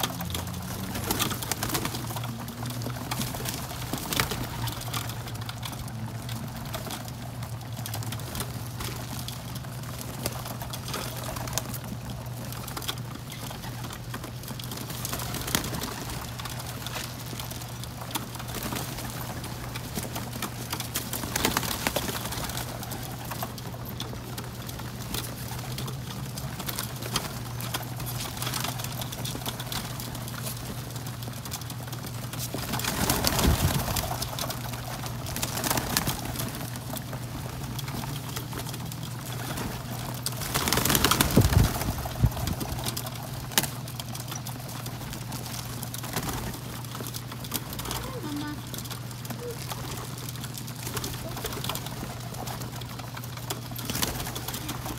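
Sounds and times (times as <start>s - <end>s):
pigeons cooing: 0.0s - 54.9s
wings flapping: 0.0s - 54.9s.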